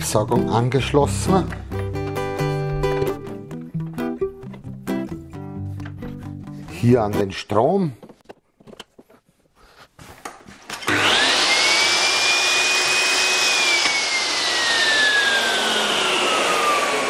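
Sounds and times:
dust extractor suction rush: 10.8s - 17.0s
saw motor whine: 10.8s - 17.0s.

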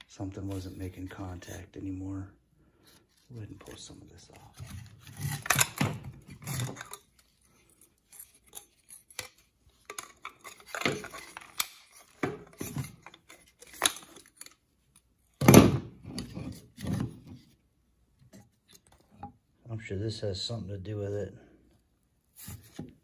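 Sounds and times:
plastic parts clicking and rattling: 3.6s - 17.3s.

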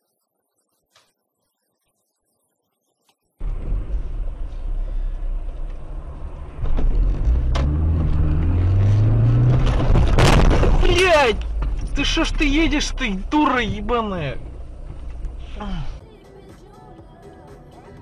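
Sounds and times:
car engine accelerating: 3.4s - 16.0s
road noise inside car: 3.4s - 16.0s.

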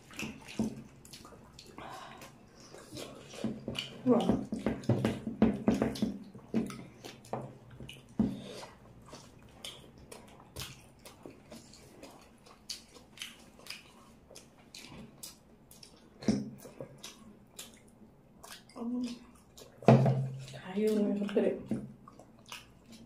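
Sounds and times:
chewing and lip smacks: 0.0s - 4.9s, 5.8s - 23.0s
fingers squishing wet food: 0.0s - 23.0s.

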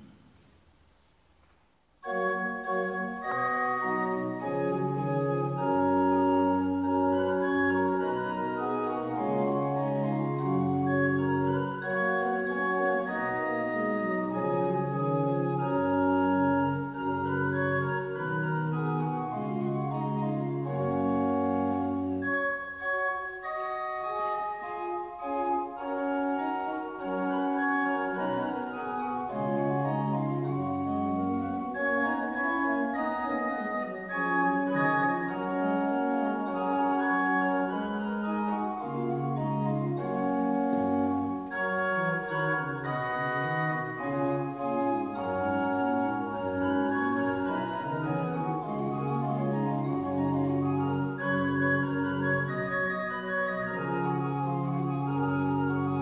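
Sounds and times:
pipe organ playing chords: 2.0s - 56.0s.

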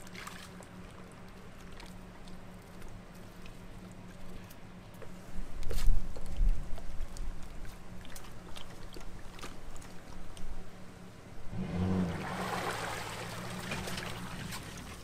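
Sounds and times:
truck engine idling and revving: 10.9s - 15.0s
water rushing and splashing: 11.5s - 15.0s.

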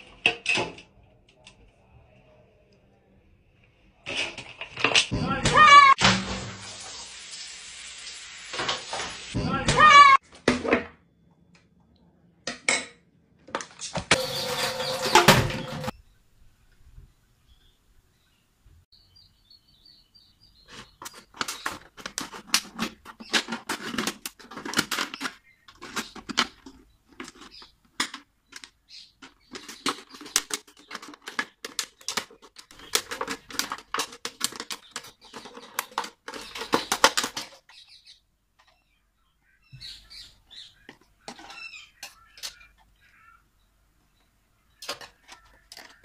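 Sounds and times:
plastic bottle crinkling: 20.7s - 37.8s.

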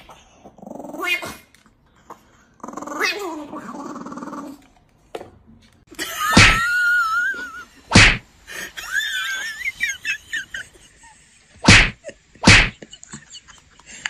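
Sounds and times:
sharp bursts of noise: 11.6s - 12.8s.

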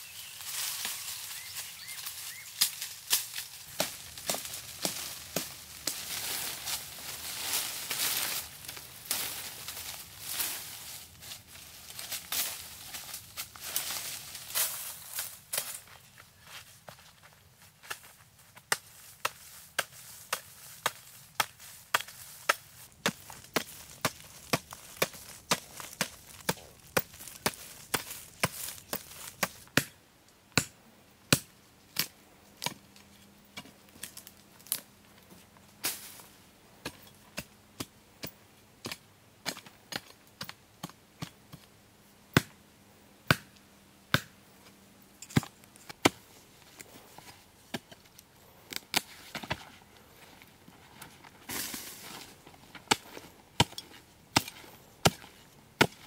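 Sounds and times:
hoe chopping into dry earth: 52.7s - 56.0s.

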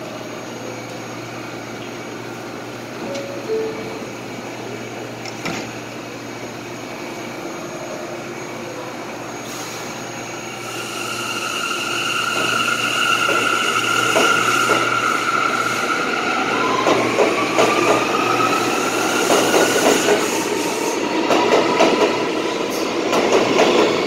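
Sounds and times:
electric whine of train pulling out: 0.0s - 23.2s
steady hum of train cars: 0.0s - 24.0s
two-note door chime: 3.1s - 4.2s
train doors shutting with a knock: 21.2s - 24.0s.

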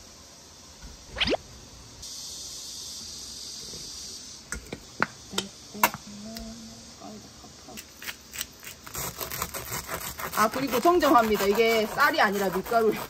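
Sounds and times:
steady hiss: 0.0s - 8.9s
quick falling squeak: 1.1s - 1.4s.

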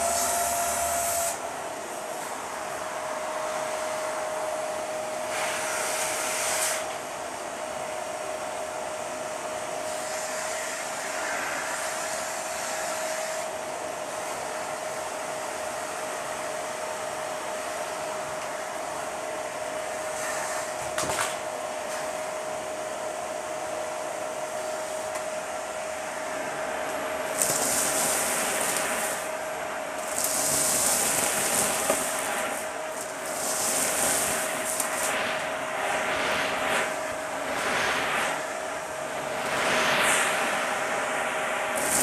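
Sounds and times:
rush of air in hose: 0.0s - 1.4s, 5.2s - 6.9s, 9.8s - 13.6s, 20.1s - 20.8s, 24.6s - 42.0s
vacuum cleaner whining: 0.0s - 42.0s.

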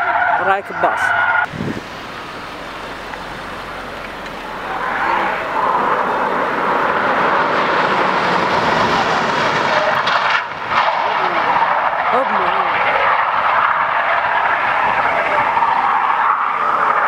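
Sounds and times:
cars speeding on a road: 0.0s - 17.0s.

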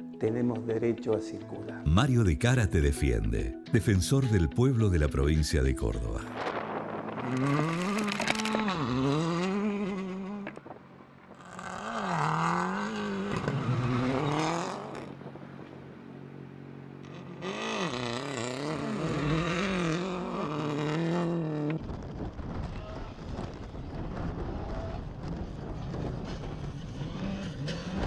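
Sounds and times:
engine revving: 6.3s - 15.9s, 16.5s - 22.0s, 25.3s - 28.0s.

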